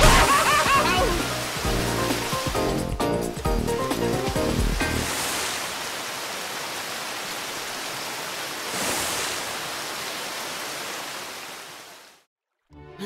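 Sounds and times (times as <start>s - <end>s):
cartoon water rushing: 0.0s - 2.6s.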